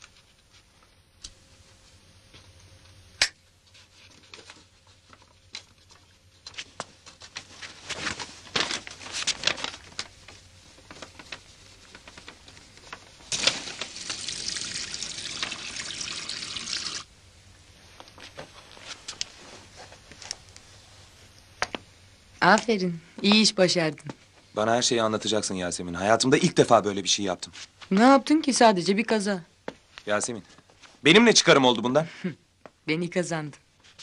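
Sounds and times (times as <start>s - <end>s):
burning paper crackling: 3.6s - 15.7s.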